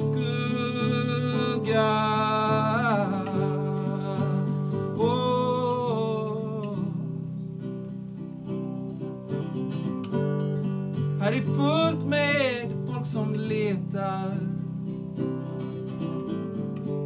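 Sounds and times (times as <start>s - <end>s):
man singing: 0.0s - 7.3s, 11.1s - 15.3s
acoustic guitar strummed and picked: 0.0s - 17.0s.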